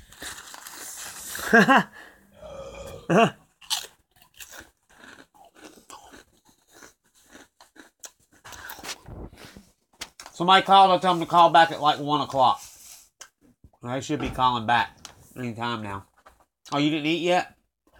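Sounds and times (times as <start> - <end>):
crunching snack: 0.0 - 1.5, 2.9 - 9.5
person grunting: 2.3 - 3.4.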